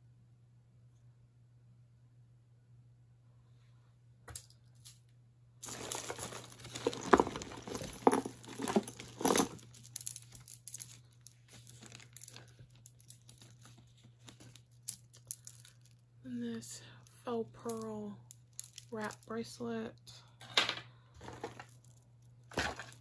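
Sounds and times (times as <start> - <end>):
soft rustling and small clicks: 4.4 - 16.0
packaging crinkling: 5.6 - 16.0.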